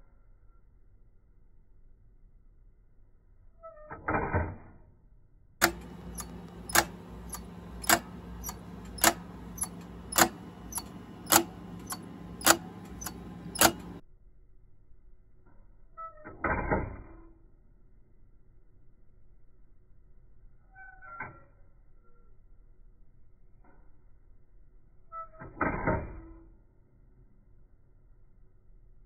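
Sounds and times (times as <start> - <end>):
clock escapement ticking: 5.6 - 14.0.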